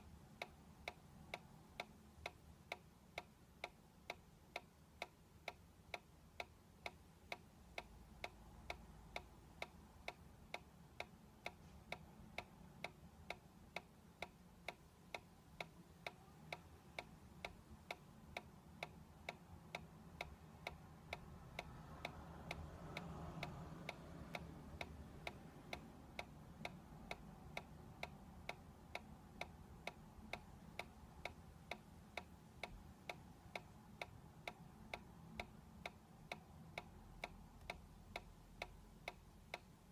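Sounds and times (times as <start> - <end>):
toy mechanism ticking: 0.0 - 39.9.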